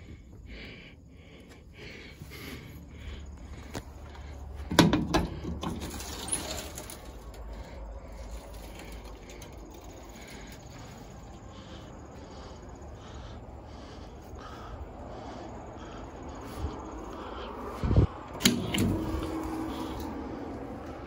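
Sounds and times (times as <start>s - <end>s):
knocks and clatter of metal: 4.6s - 10.7s
wind rumble on microphone: 16.4s - 21.0s.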